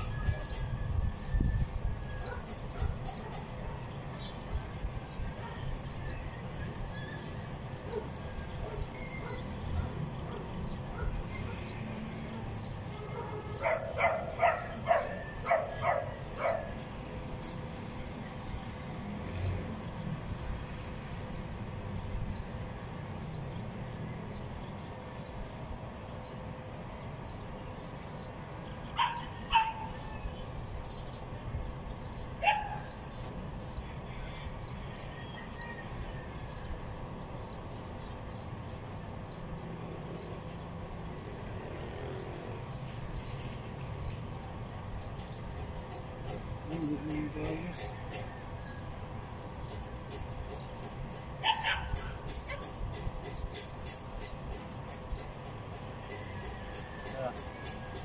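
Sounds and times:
dog barking: 8.6 - 11.7, 13.0 - 16.7, 29.0 - 29.9, 32.4 - 32.9, 51.4 - 52.7.

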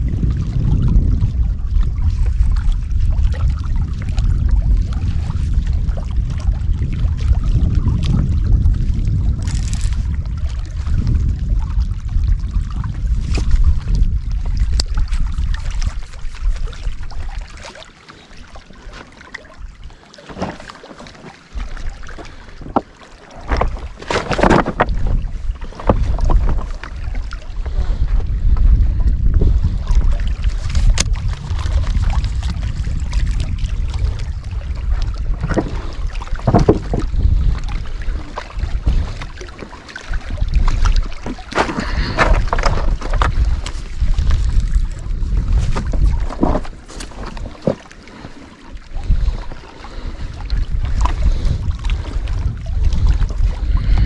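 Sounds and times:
wind buffeting microphone: 0.0 - 17.8, 18.8 - 54.0
footsteps on loose rock: 20.3 - 21.3, 22.6 - 26.8, 35.4 - 37.2, 41.2 - 48.4.

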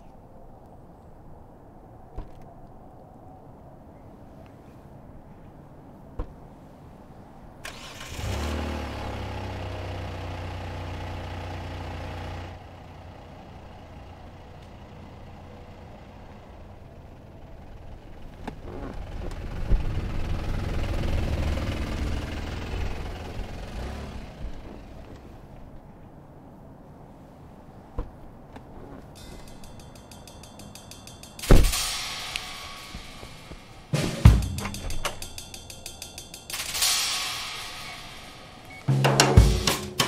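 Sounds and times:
car engine starting and running: 7.6 - 25.8
vehicle passing: 7.6 - 26.6.

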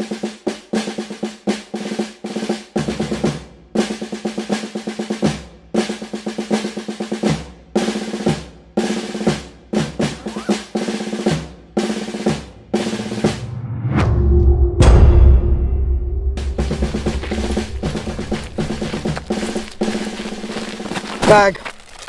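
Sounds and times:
snare drum rolls: 16.4 - 19.6.

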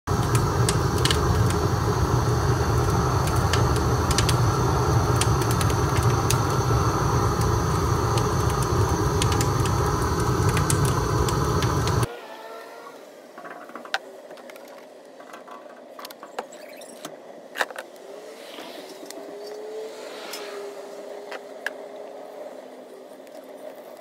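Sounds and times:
fire roaring: 0.0 - 12.1
fire crackling and popping: 0.1 - 12.1.

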